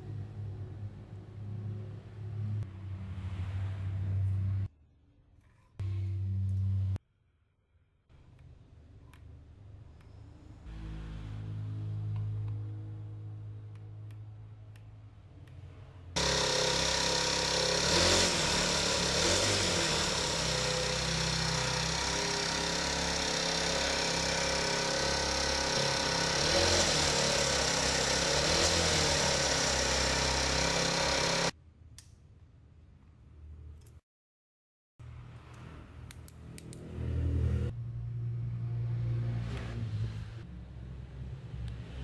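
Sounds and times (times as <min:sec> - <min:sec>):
small four-stroke engine running: 0:16.2 - 0:31.5.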